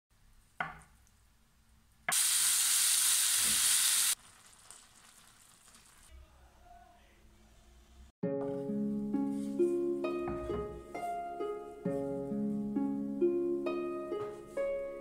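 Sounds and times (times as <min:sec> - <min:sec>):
food sizzling in frying pan: 0:02.1 - 0:06.1.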